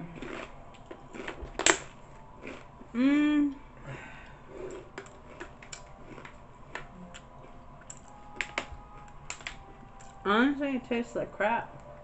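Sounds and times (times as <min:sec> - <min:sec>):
clicks and crackles of snacking: 0:00.0 - 0:02.7, 0:04.2 - 0:10.2.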